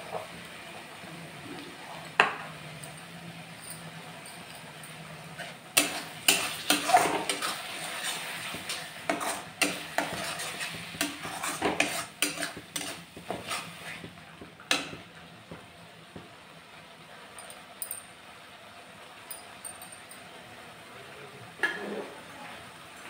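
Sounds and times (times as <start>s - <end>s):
faint sizzle: 0.0s - 23.0s
spatula scraping metal pan: 5.8s - 14.0s.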